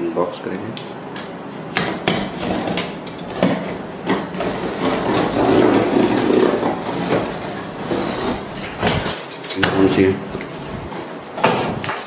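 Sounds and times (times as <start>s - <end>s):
knife slicing packing tape: 1.8s - 7.3s.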